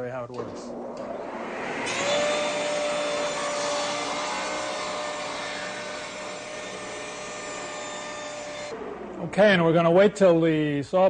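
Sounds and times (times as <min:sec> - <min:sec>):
table saw cutting wood: 0:00.6 - 0:08.8.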